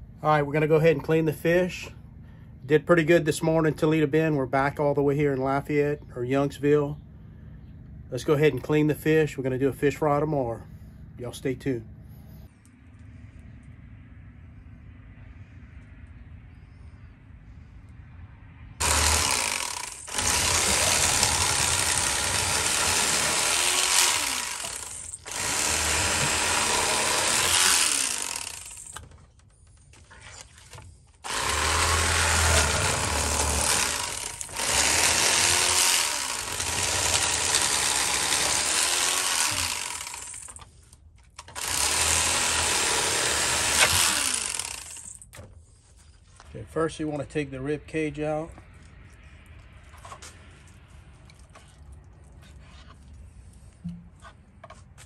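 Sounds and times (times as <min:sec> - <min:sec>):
electric fillet knife buzzing: 0:18.8 - 0:29.0, 0:31.2 - 0:40.6, 0:41.5 - 0:45.2.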